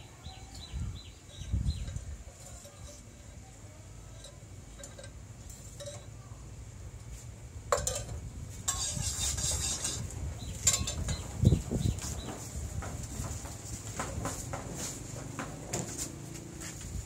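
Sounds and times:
metal utensils clinking on pots: 4.0 - 6.2, 7.7 - 11.3.

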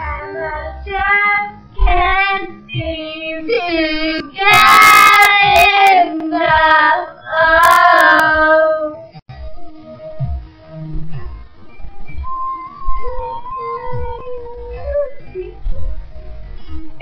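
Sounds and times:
slowed girls singing: 0.0 - 9.1.

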